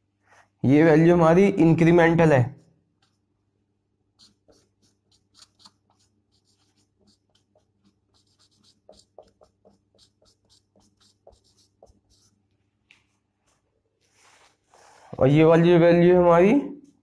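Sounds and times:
marker writing on whiteboard: 3.0 - 3.4, 4.1 - 15.4.

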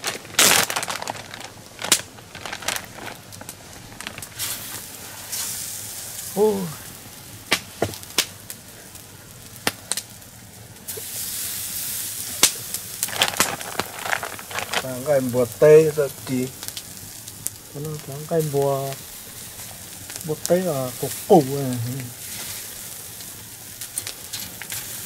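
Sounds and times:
plastic bag rustling: 0.0 - 8.2, 12.0 - 17.1
meat sizzling on a grill: 0.0 - 25.0.

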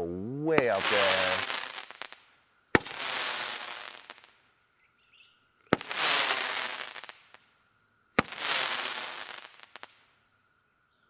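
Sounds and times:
crackling hiss: 0.0 - 11.0
firework pops: 0.5 - 4.4, 5.7 - 7.5, 8.2 - 10.0.

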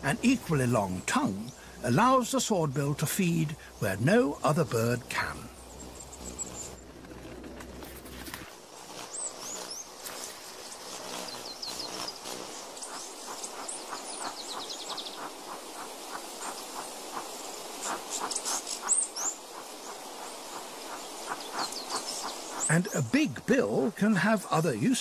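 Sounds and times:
insect hiss: 0.0 - 25.0
high bird chirps: 11.2 - 15.4.

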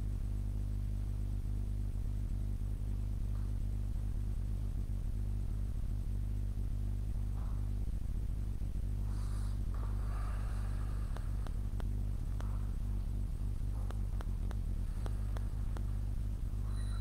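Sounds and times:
steady low hum: 0.0 - 17.0
faint buzz: 8.4 - 17.0.

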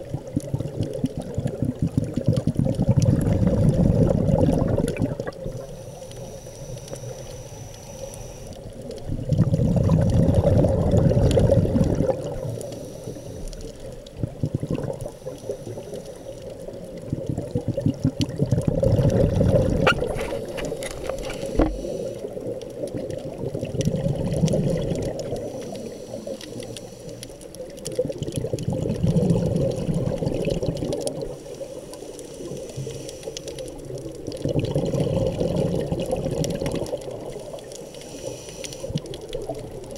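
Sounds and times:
exhaled bubbles rushing underwater: 0.0 - 5.8, 8.1 - 39.9
regulator breathing underwater: 5.5 - 8.7, 9.4 - 13.9, 14.5 - 16.6, 18.5 - 22.6, 23.9 - 27.6, 29.0 - 33.8, 36.6 - 39.2.

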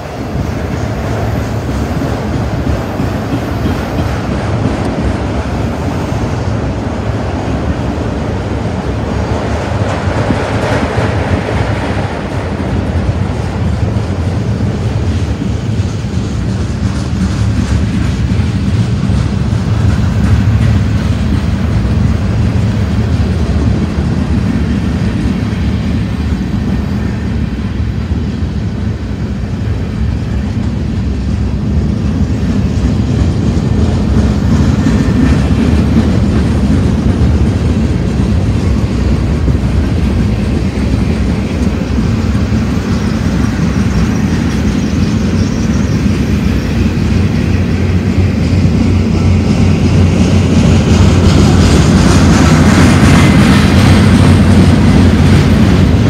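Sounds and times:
freight train wheels rumbling on rails: 0.0 - 56.0.

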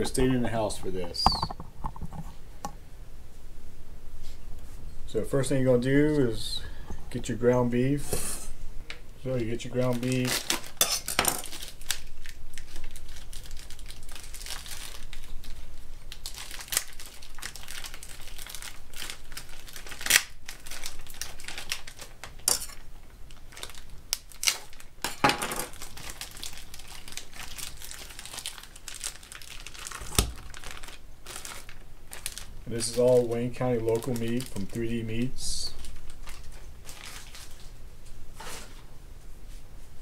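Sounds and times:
plastic packaging crinkling and tearing: 9.4 - 37.8.

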